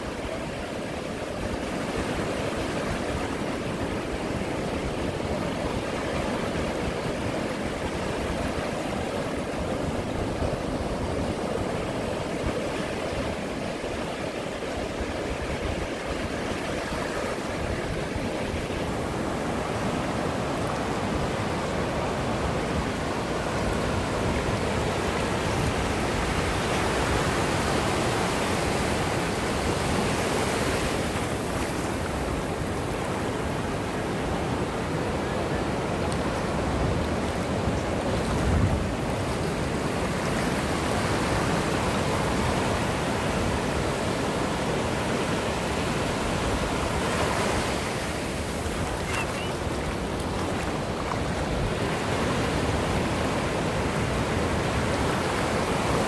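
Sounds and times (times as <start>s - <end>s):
ocean surf washing onto beach: 0.0s - 56.0s.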